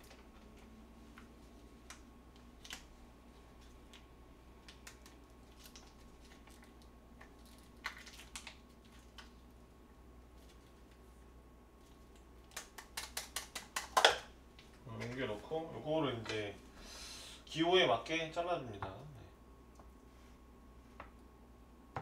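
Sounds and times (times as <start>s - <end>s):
plastic package clicks and crinkles: 0.0s - 2.9s, 3.6s - 9.4s.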